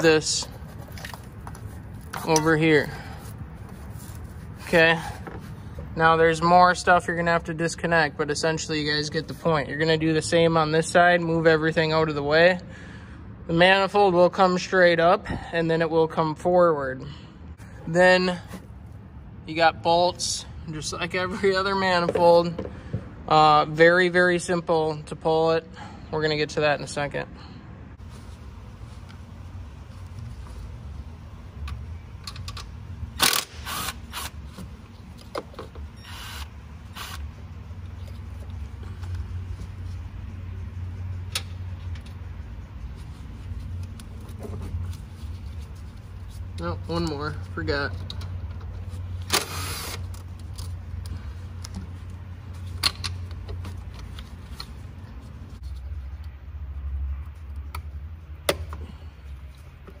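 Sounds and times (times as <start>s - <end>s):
steady low hum: 27.2s - 60.0s.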